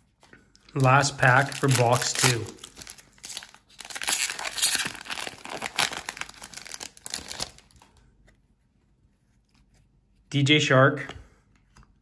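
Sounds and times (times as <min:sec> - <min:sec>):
foil wrapper tearing and crinkling: 0:00.8 - 0:07.8.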